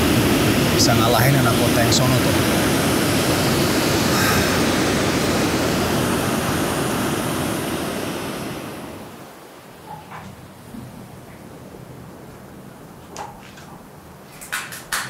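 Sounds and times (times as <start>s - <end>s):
ocean surf breaking on beach: 0.0s - 10.0s.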